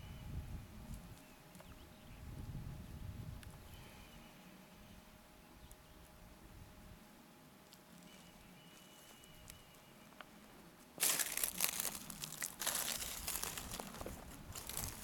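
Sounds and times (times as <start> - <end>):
footsteps crunching dry grass: 10.8 - 15.0.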